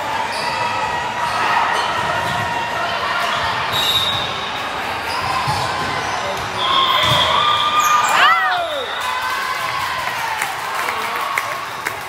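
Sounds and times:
voices of players and spectators: 0:00.0 - 0:12.0
sneakers squeaking on court floor: 0:03.3 - 0:08.3.

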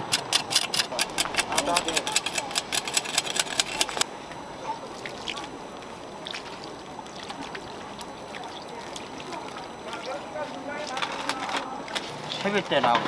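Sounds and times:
water trickling over ice: 0:04.8 - 0:12.8.

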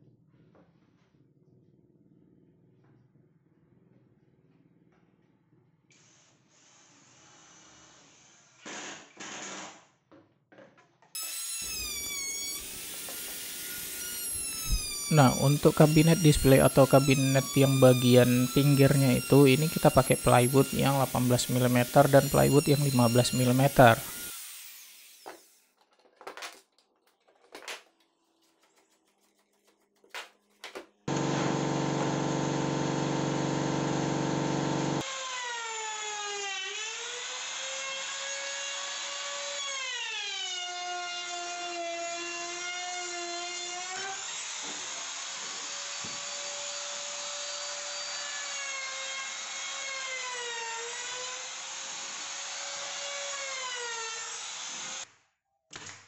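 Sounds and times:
power tool cutting wood: 0:11.2 - 0:25.7, 0:31.1 - 0:55.1.

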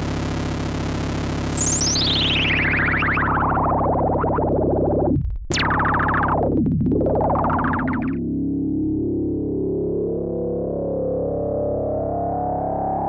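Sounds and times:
buzzy synthesizer tone: 0:00.0 - 0:08.4
low synthesizer drone: 0:00.0 - 0:13.0
synthesizer pitch sweeping down: 0:00.0 - 0:13.0.

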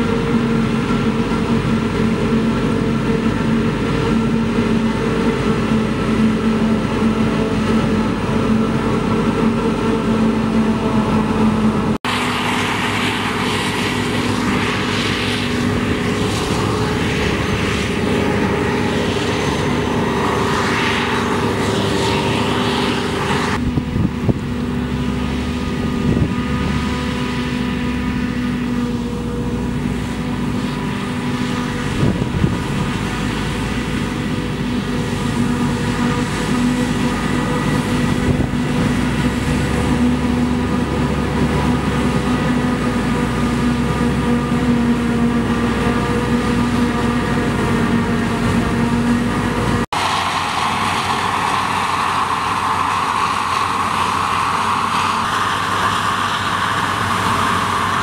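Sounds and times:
harvester engine drone: 0:00.0 - 0:58.0.

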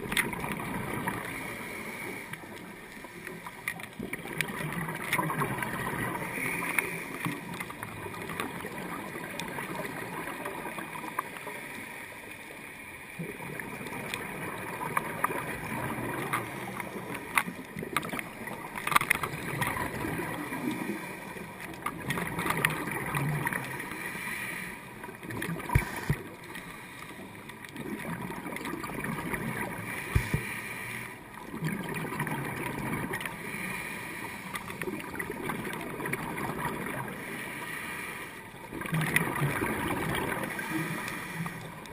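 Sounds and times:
exhaled bubbles: 0:00.0 - 0:11.6, 0:13.2 - 0:24.0, 0:25.0 - 0:26.6, 0:27.6 - 0:30.4, 0:31.3 - 0:33.5, 0:34.7 - 0:37.4, 0:38.6 - 0:41.9
diver's regulator breathing: 0:00.1 - 0:08.2, 0:11.1 - 0:13.2, 0:18.8 - 0:27.6, 0:29.5 - 0:31.3, 0:33.1 - 0:35.4, 0:36.7 - 0:38.8, 0:39.5 - 0:41.9.

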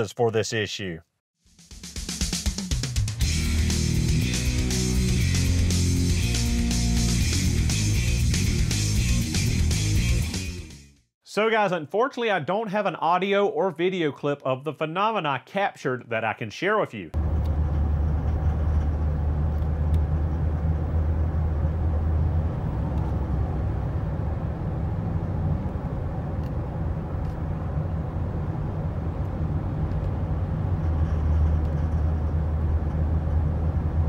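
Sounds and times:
engine and road drone in cabin: 0:17.2 - 0:34.0.

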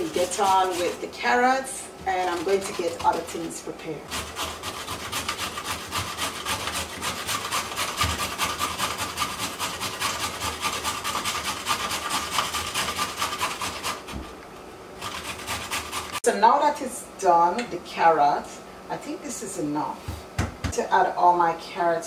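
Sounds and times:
carrots grated on metal grater: 0:00.0 - 0:14.3, 0:15.0 - 0:16.2.

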